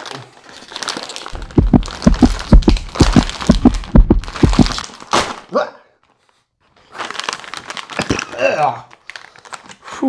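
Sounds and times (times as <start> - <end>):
plastic chip bag crinkling: 0.0 - 3.5, 6.9 - 9.8.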